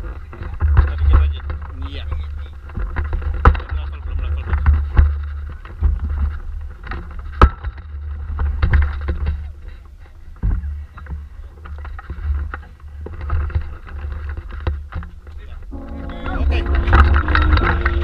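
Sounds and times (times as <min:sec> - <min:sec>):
wind buffeting microphone: 0:00.0 - 0:18.0
knocks and clicks: 0:10.4 - 0:18.0.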